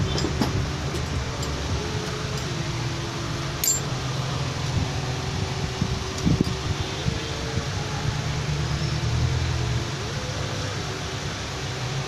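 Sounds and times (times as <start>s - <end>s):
mechanical hum: 0.0s - 12.0s
light metallic clink: 3.6s - 3.9s.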